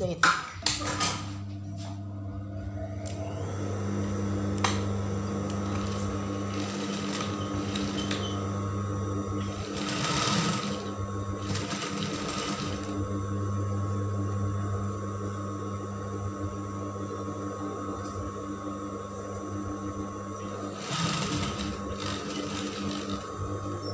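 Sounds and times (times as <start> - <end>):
motor hum: 1.2 - 23.9
sewing machine stitching: 5.5 - 8.4, 9.4 - 13.0, 20.4 - 23.9.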